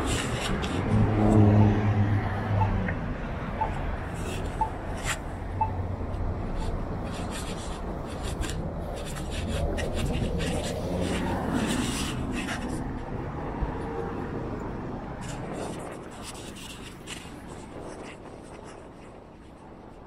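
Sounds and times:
low rumble of traffic: 0.0 - 20.0.

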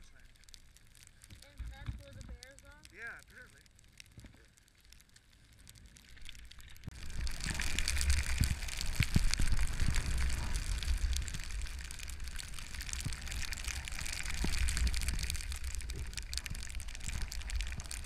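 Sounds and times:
sharp scrapes and clicks: 0.0 - 18.0
skis sliding over snow: 6.9 - 18.0.

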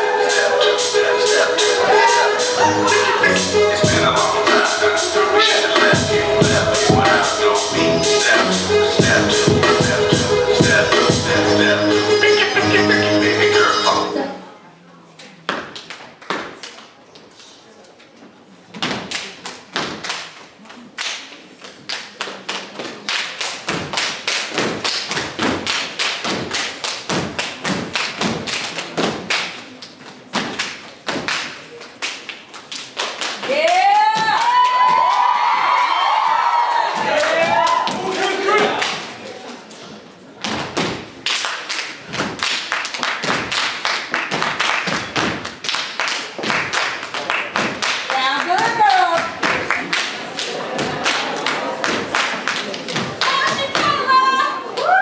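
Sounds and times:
hand claps: 19.1 - 20.4, 21.0 - 34.8, 40.5 - 53.9
stomps on a stage floor: 23.7 - 29.3, 30.3 - 31.6, 40.4 - 41.1, 42.1 - 42.5, 43.2 - 43.6, 44.2 - 45.6, 47.6 - 47.8.

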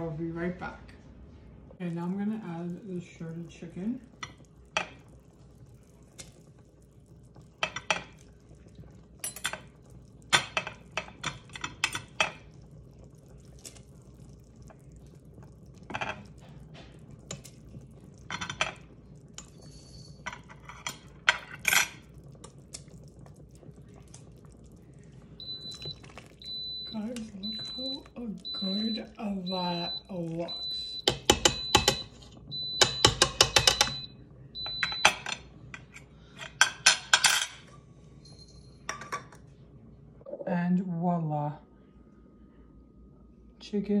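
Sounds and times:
spoon clinking on metal pot: 9.2 - 9.7, 31.0 - 32.2, 32.8 - 34.0
steady high beep: 26.5 - 35.0.

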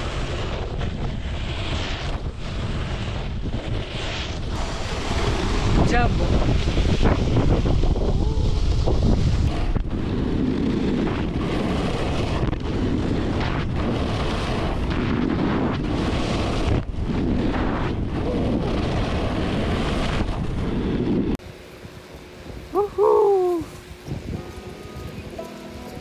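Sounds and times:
snowboard scraping over snow: 0.0 - 21.4, 22.5 - 26.0
wind on microphone: 0.0 - 26.0.

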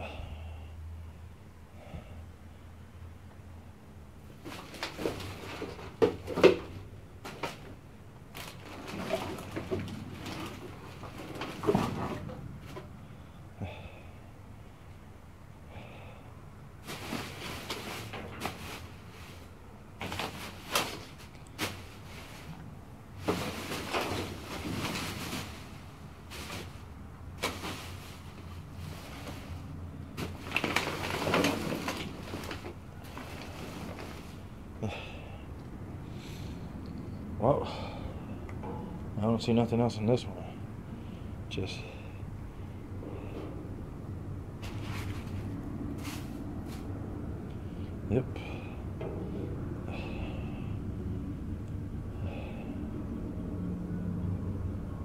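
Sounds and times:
plastic bag rustling: 4.3 - 7.7, 8.3 - 12.9, 16.8 - 22.6, 23.2 - 34.5, 44.6 - 46.9.

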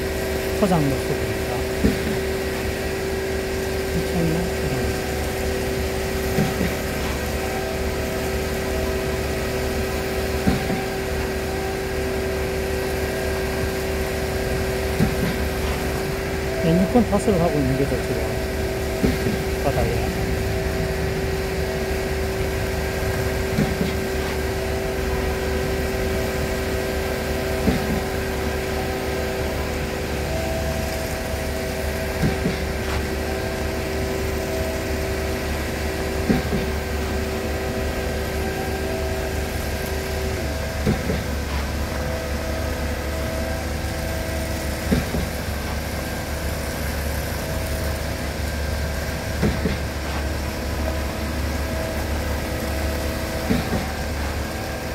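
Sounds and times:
concrete pump truck running: 0.0 - 54.9
steady whine: 0.0 - 54.9
pump stroke knock: 36.2 - 37.2.

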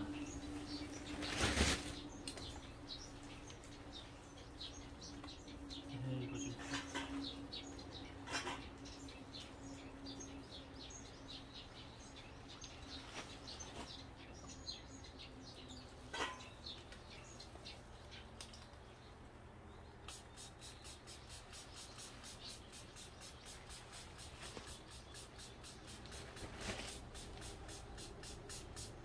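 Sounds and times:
small birds chirping: 0.0 - 29.0
quick even rubbing: 20.1 - 29.0.

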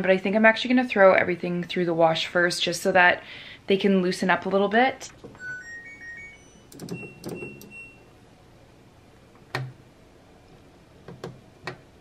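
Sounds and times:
washing machine panel beeps: 5.4 - 8.2.

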